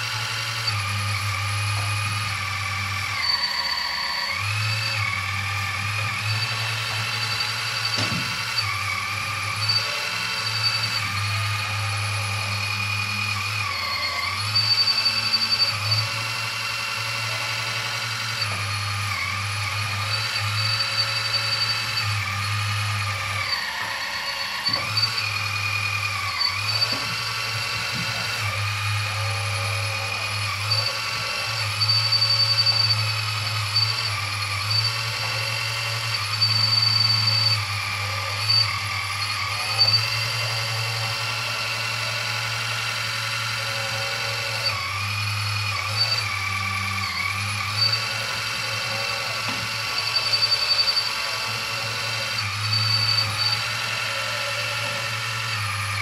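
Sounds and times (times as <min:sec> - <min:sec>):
electric motors whining: 0:00.0 - 0:56.0.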